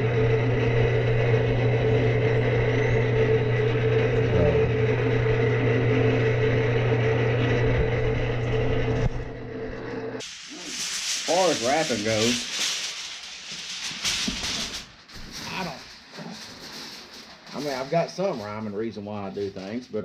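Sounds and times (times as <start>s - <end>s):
low drone: 0.0s - 10.2s
mechanical hum of smoker drive: 0.0s - 10.6s.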